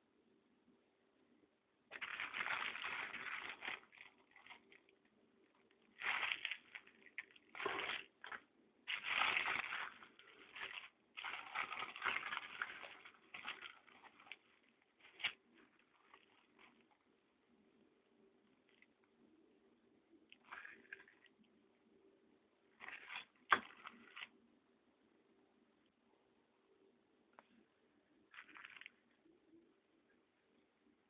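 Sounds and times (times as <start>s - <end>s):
plastic packaging crinkling: 1.9s - 17.1s, 20.3s - 21.5s, 22.8s - 24.3s, 28.3s - 29.2s.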